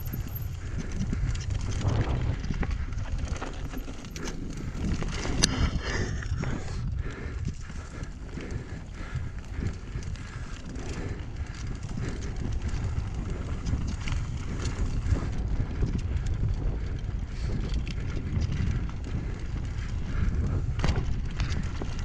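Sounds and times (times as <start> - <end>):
bike rattling over rocks: 0.0 - 6.4, 7.3 - 22.0
wind on microphone: 0.0 - 22.0.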